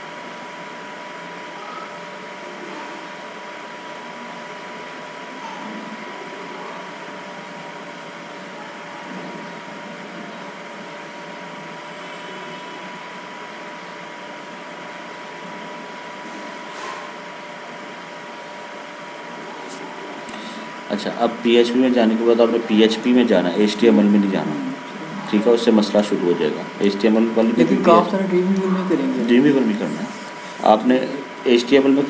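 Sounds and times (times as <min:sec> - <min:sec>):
thin electrical whine: 0:00.0 - 0:32.0
microphone background hiss: 0:19.6 - 0:32.0.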